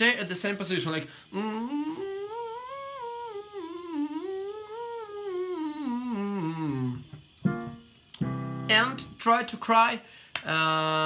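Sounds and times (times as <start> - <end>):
man humming a scale: 1.3 - 7.8.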